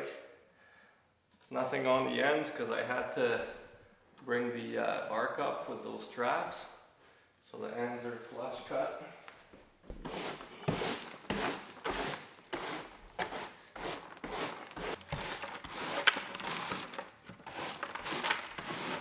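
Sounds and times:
hand brush sweeping debris: 10.0s - 19.0s.

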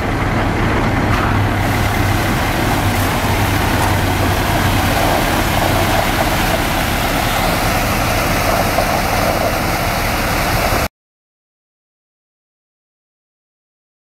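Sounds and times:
truck engine hum: 0.0s - 10.9s
water gushing onto gravel: 1.6s - 10.9s.

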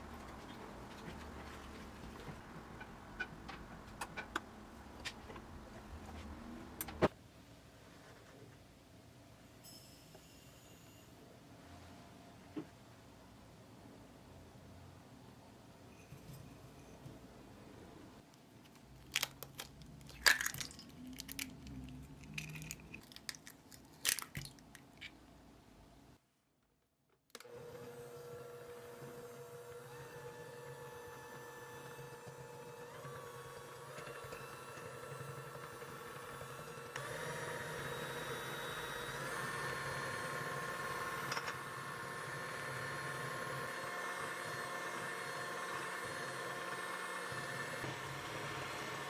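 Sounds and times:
eggshell cracking on glass bowl: 19.0s - 25.2s
electric hand mixer whining: 27.4s - 49.0s.

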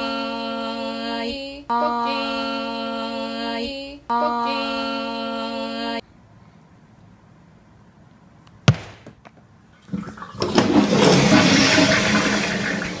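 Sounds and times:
toilet water gushing: 9.8s - 13.0s.

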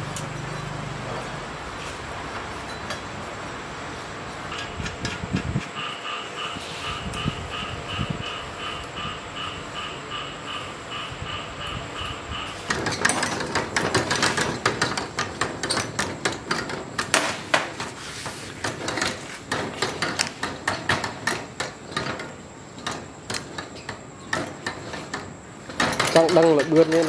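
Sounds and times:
steel gears clattering: 12.0s - 27.0s.

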